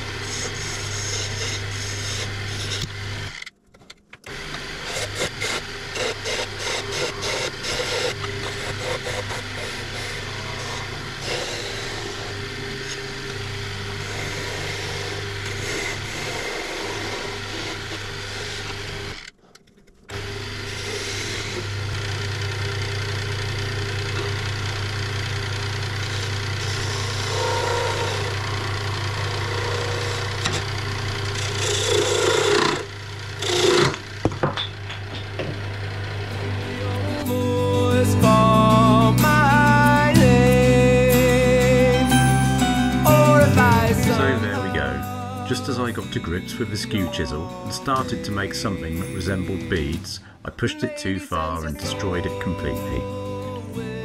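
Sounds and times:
wood lathe motor hum: 0:00.0 - 0:03.5, 0:04.2 - 0:19.4, 0:20.1 - 0:50.3, 0:51.8 - 0:54.0
chisel scraping wood: 0:00.1 - 0:03.4, 0:04.3 - 0:13.1, 0:13.9 - 0:19.5, 0:20.1 - 0:22.0, 0:26.0 - 0:34.1.

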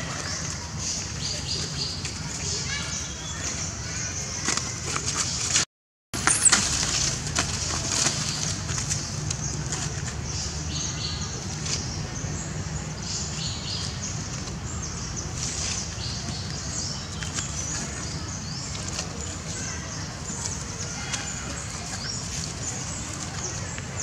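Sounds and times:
outdoor background noise: 0:00.0 - 0:24.0
sharp rustle: 0:06.2 - 0:10.0.

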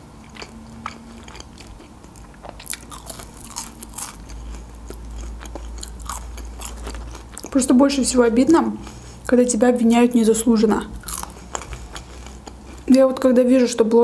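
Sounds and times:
chewing: 0:00.2 - 0:07.6, 0:11.0 - 0:13.0
crisp crunches of fries: 0:00.3 - 0:07.8, 0:11.0 - 0:13.0.

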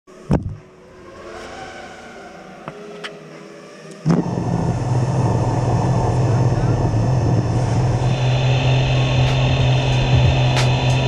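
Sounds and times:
quadcopter motors humming: 0:03.8 - 0:11.0.

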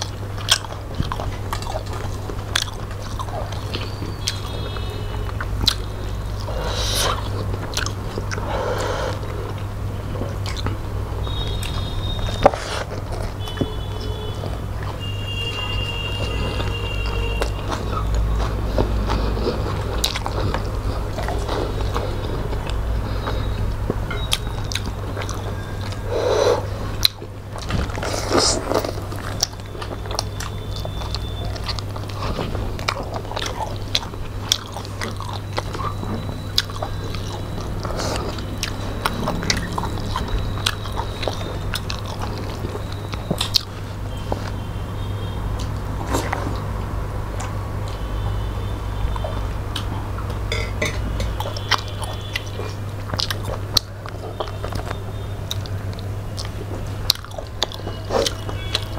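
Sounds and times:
chewing and mouth sounds: 0:00.0 - 0:58.9.

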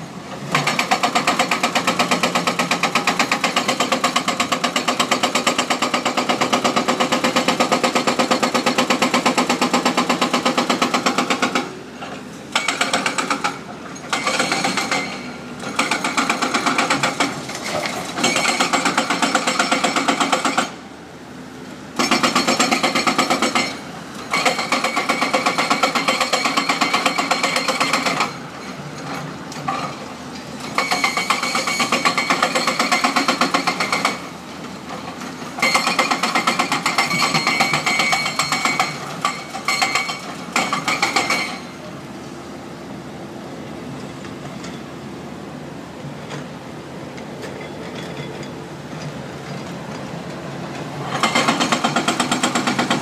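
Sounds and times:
hydraulic breaker hammering concrete: 0:00.4 - 0:11.8, 0:12.5 - 0:20.8, 0:22.0 - 0:30.0, 0:30.7 - 0:41.8, 0:51.0 - 0:53.0
diesel engines running: 0:41.6 - 0:53.0.

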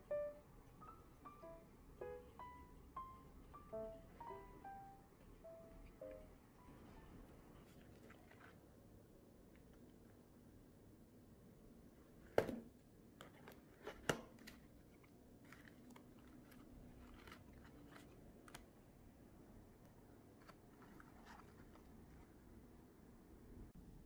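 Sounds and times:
cardboard crackling: 0:13.5 - 0:18.6.

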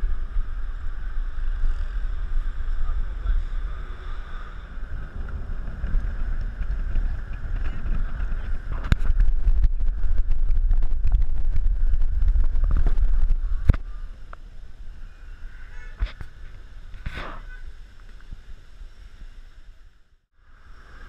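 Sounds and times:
car rumble from inside: 0:00.0 - 0:14.3.

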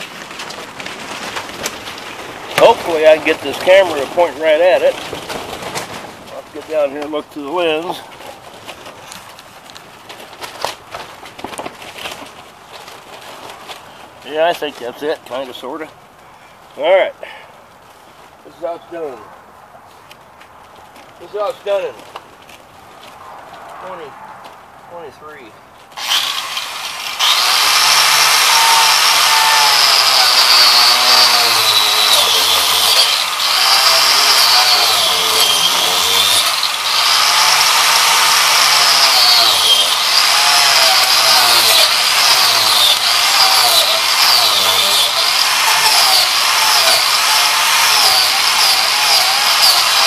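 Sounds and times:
angle grinder cutting wood: 0:02.5 - 0:05.6, 0:26.0 - 0:50.0.

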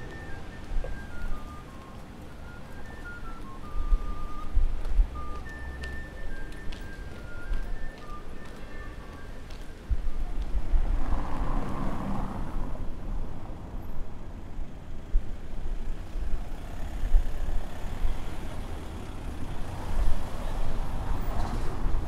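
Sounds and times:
cars driving past: 0:09.1 - 0:22.0.

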